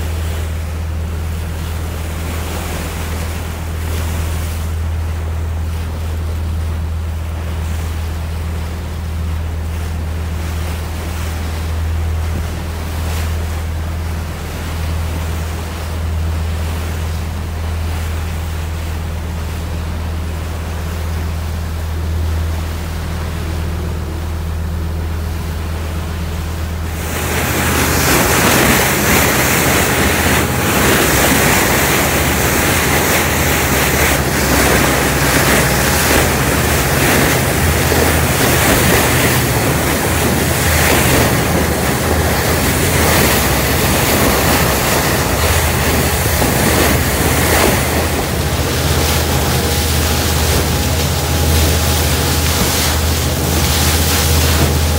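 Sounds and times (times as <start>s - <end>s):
boat engine droning: 0.0s - 54.9s
rush of wind and water: 0.0s - 54.9s
wind buffeting microphone: 23.2s - 54.9s.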